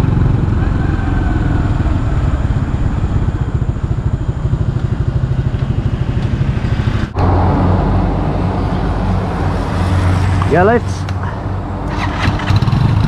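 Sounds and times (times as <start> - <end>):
small motorcycle engine running: 0.0 - 7.1, 12.0 - 13.0.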